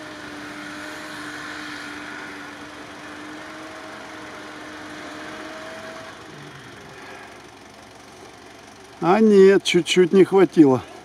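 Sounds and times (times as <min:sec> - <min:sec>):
wheels spinning in snow: 0:00.0 - 0:07.7
car engine at high revs: 0:00.0 - 0:09.4.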